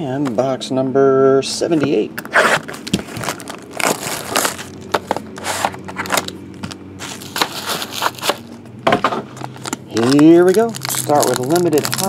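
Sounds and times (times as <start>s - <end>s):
plastic and foil wrapping crinkling: 2.6s - 8.6s, 9.3s - 12.0s.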